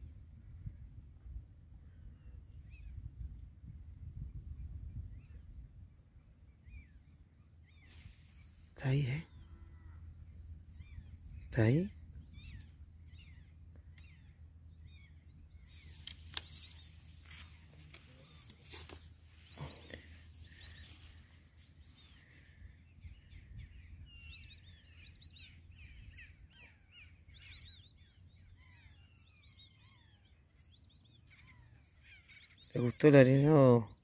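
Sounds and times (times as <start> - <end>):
small birds chirping: 0.1 - 34.0
steady low rumble: 8.4 - 18.5.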